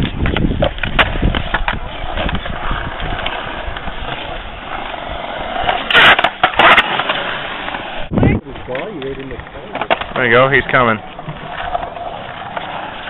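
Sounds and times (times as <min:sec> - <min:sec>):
skateboard clacks: 0:00.0 - 0:07.9, 0:08.6 - 0:13.0
skateboard wheels rolling on concrete: 0:00.0 - 0:13.0
loud skateboard clatter: 0:05.6 - 0:07.9.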